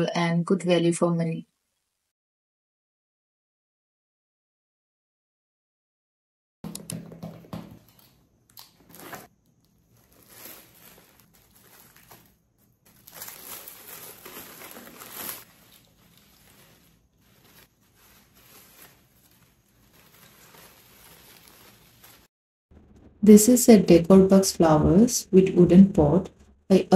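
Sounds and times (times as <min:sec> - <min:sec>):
packaging crinkling and tearing: 0:07.9 - 0:22.3.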